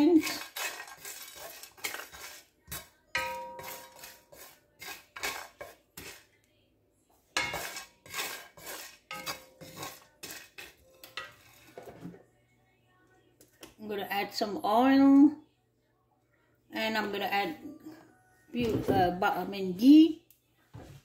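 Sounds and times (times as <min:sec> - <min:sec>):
wooden spatula scraping a pan: 0:00.0 - 0:06.4, 0:07.4 - 0:12.2.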